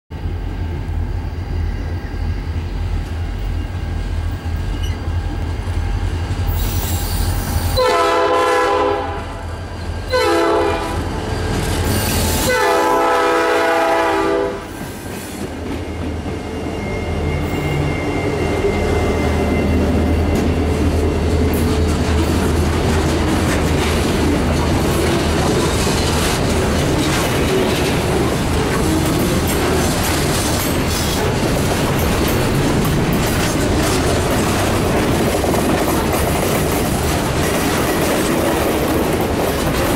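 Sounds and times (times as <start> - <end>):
diesel locomotives passing: 0.1 - 39.9
locomotive horn blasts: 7.7 - 9.5, 10.1 - 11.1, 12.2 - 14.8
freight cars rolling: 14.8 - 39.9.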